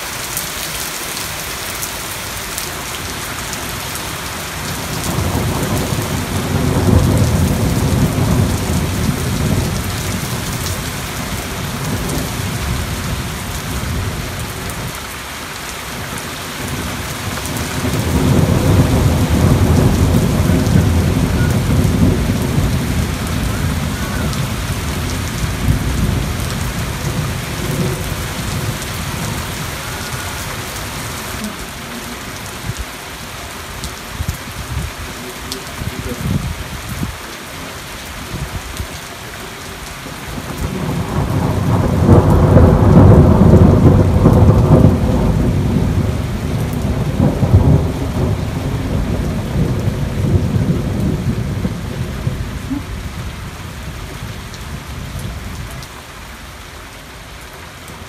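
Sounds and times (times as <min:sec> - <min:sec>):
heavy rain hissing: 0:00.0 - 0:58.0
thunder rolling: 0:05.0 - 0:14.5, 0:16.6 - 0:32.8, 0:40.3 - 0:53.2.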